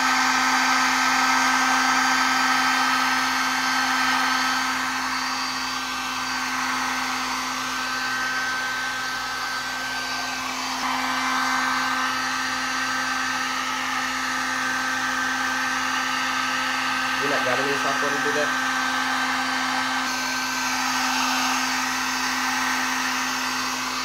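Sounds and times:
heat gun blowing air: 0:00.0 - 0:24.0
heat gun motor hum: 0:00.0 - 0:24.0.

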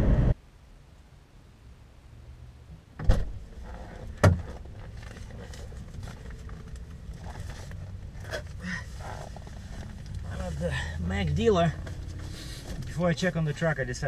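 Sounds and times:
outside hum: 0:00.0 - 0:14.0
car door clunks: 0:03.0 - 0:03.4, 0:04.2 - 0:04.6.

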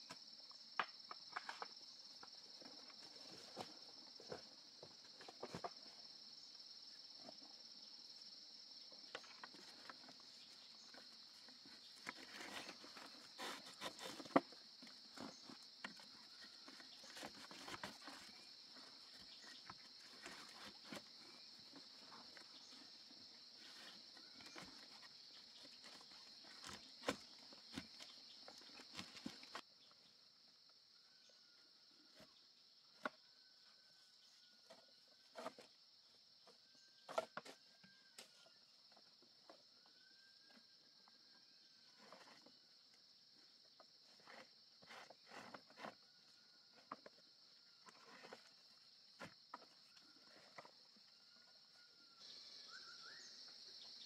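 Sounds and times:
high-pitched insect chorus: 0:33.4 - 0:54.0.

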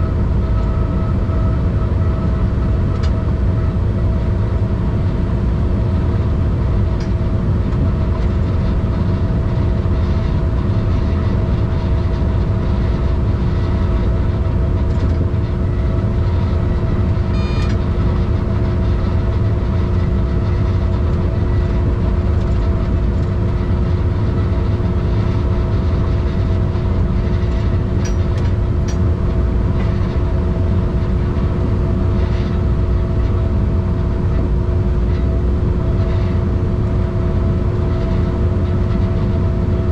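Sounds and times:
road vehicle rumble: 0:00.0 - 0:39.9
brief high tone: 0:17.3 - 0:17.8.

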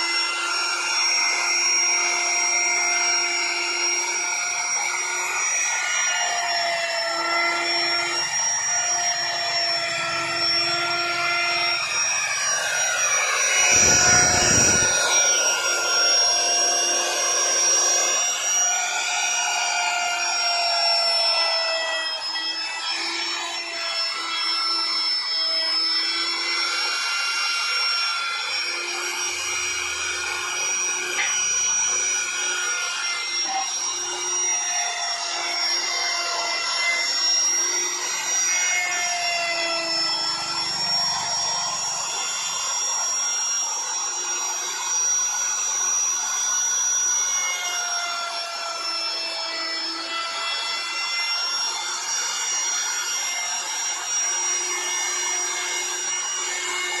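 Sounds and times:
electric router whining: 0:00.0 - 0:57.0.

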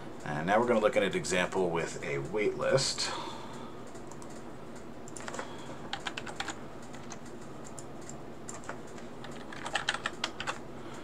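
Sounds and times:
computer keyboard typing: 0:03.8 - 0:11.0.

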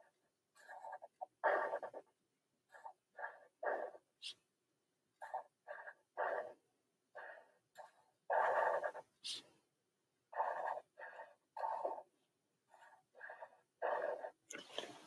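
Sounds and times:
marker stroking across paper: 0:07.9 - 0:09.6, 0:10.4 - 0:12.1.

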